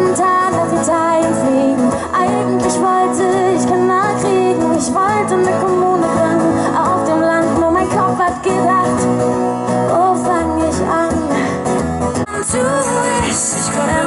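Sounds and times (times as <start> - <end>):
strummed acoustic guitar: 0.0 - 14.0
woman singing into microphone: 0.0 - 14.0.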